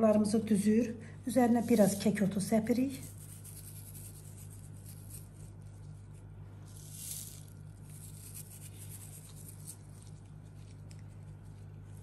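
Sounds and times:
dry herbs rustling: 3.0 - 12.0.

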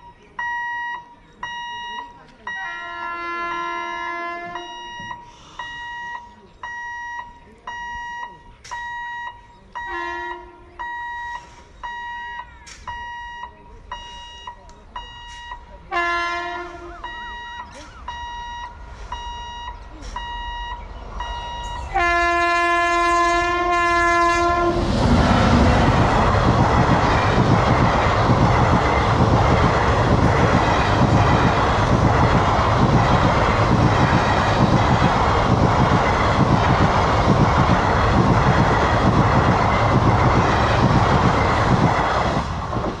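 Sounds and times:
train coaches rumbling and clattering: 0.0 - 43.0
train horn blasts: 2.5 - 4.8, 9.8 - 10.9, 15.9 - 18.4, 21.3 - 25.0
electronic beeps: 17.0 - 21.9.

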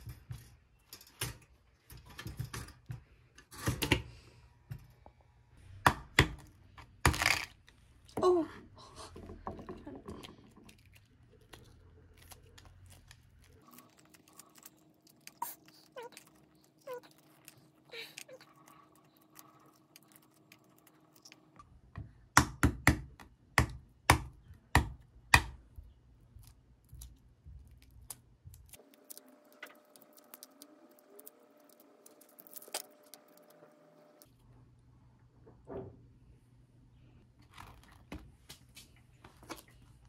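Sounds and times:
egg shell crackling: 10.4 - 21.6, 26.3 - 34.3.

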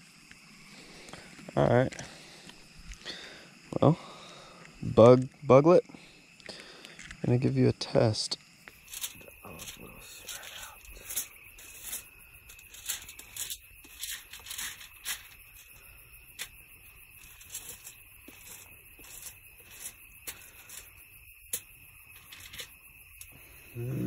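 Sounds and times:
high insect chirring: 0.0 - 24.0
rustles: 8.6 - 24.0.

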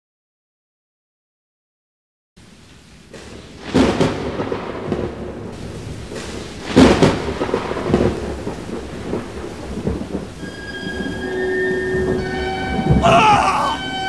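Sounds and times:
steady rain: 2.4 - 14.0
thunder claps rumbling: 3.1 - 14.0.

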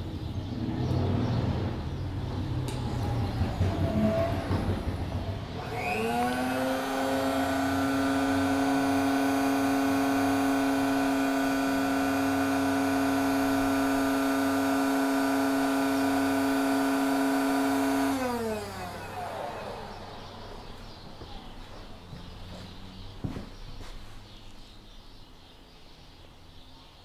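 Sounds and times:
lather machine motor whining: 5.5 - 20.8.

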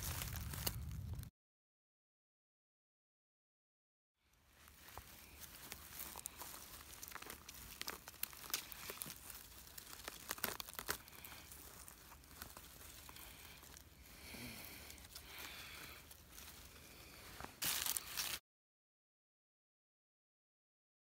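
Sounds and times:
dry grass and leaves rustling: 0.0 - 1.3, 4.3 - 18.4.

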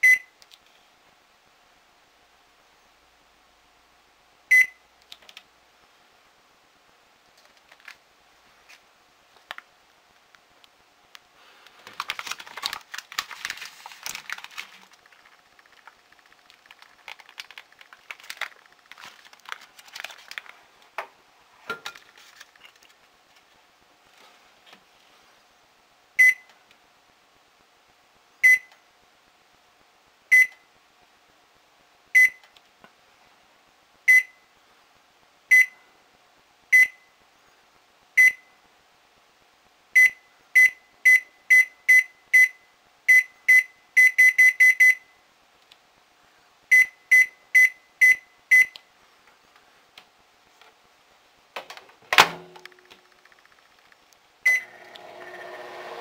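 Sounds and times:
handling noises: 11.5 - 25.0
microwave button beeps: 54.5 - 54.8.

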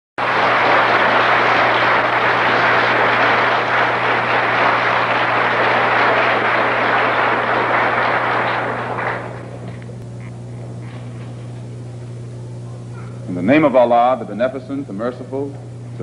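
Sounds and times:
audience applauding: 0.2 - 10.0
low electrical hum: 0.2 - 16.0.

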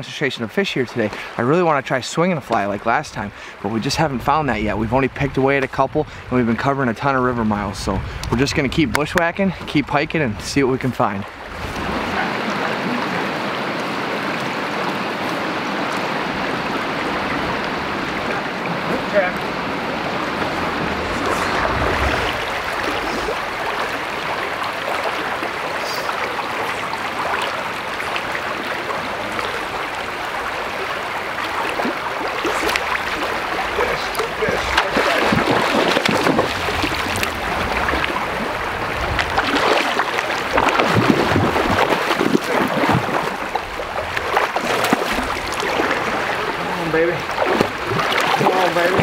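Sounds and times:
rushing river water: 0.0 - 49.0.

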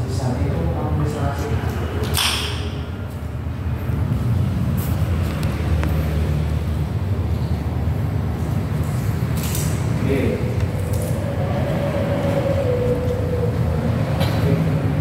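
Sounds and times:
steady low rumble: 6.5 - 15.0.

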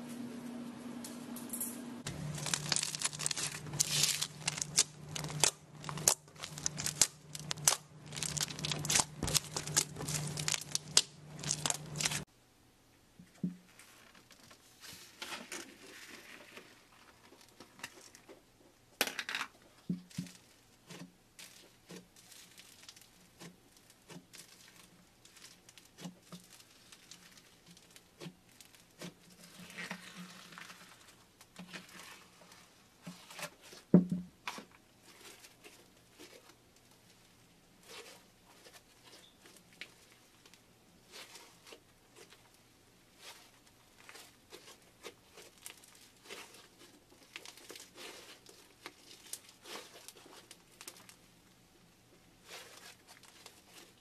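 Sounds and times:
slime crackling and squelching: 2.0 - 12.3, 20.1 - 33.9, 34.5 - 51.3, 52.3 - 54.0.

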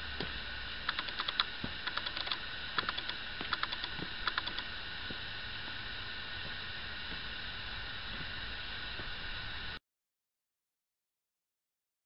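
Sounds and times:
steady high hum: 0.0 - 9.8
quick sharp clicks: 0.9 - 4.7.

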